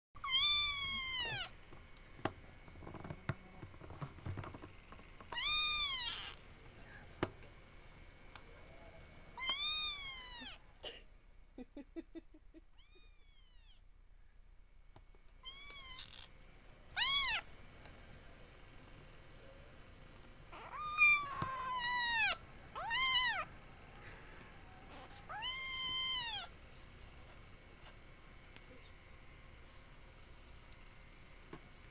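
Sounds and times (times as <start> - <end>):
kitten meowing: 0.2 - 1.5, 5.3 - 6.4, 9.4 - 10.6, 12.8 - 13.8, 15.4 - 16.3, 17.0 - 17.5, 20.5 - 23.5, 24.8 - 27.3.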